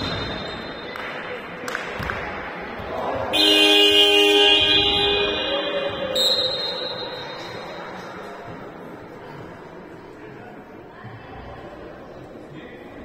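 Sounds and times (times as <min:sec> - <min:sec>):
loud horn blast: 0:03.3 - 0:06.8.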